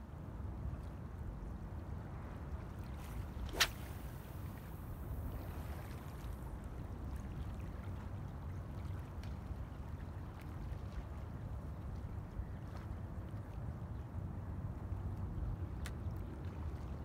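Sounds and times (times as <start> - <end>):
wind and sea rumble: 0.0 - 17.0
fishing rod cast whoosh: 3.0 - 4.4.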